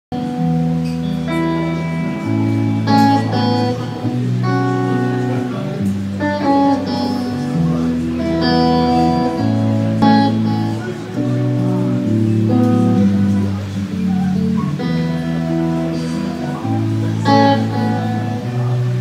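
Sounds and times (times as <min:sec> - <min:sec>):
guitar notes: 0:00.1 - 0:19.0
live band slow instrumental: 0:00.2 - 0:19.0.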